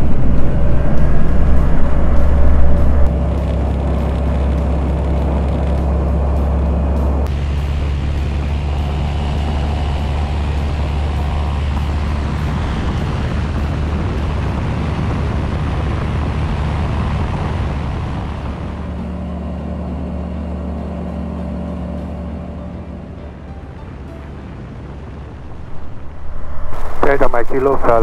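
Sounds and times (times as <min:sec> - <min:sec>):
rushing air: 0:00.0 - 0:19.0, 0:25.1 - 0:28.0
light aircraft engine droning: 0:00.0 - 0:28.0.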